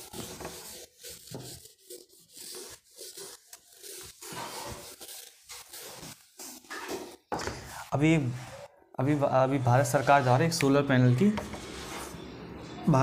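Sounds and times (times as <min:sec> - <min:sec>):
scratchy rubbing strokes: 0:00.0 - 0:07.1, 0:07.7 - 0:08.7, 0:09.7 - 0:10.6, 0:11.5 - 0:12.2.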